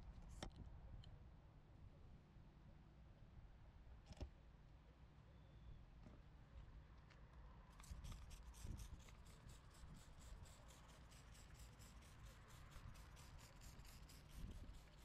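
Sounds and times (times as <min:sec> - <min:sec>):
spray bottle hissing: 0:07.8 - 0:15.0.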